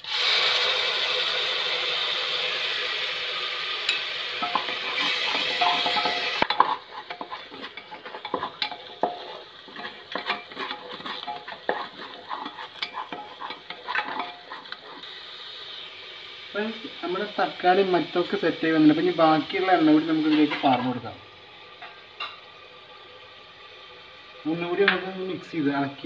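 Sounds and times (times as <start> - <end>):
tomato sizzling in hot oil: 0.0 - 26.0
wooden spatula scraping pot: 4.4 - 15.1.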